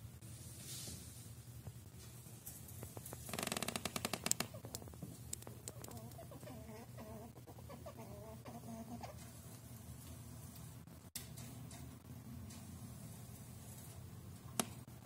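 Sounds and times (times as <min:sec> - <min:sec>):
squirrel clicking chatter: 0:03.9 - 0:09.2.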